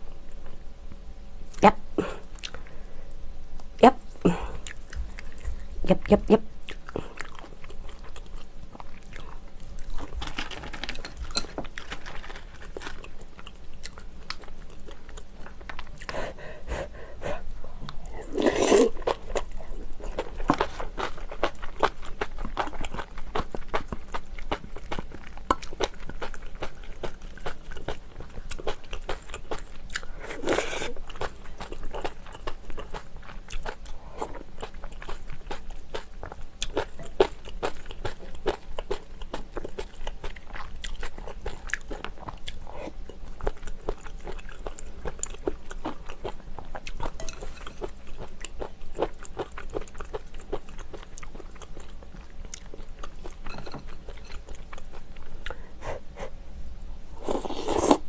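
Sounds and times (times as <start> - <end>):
wet chewing and crunching: 4.6 - 6.0, 6.6 - 16.2, 17.8 - 55.6.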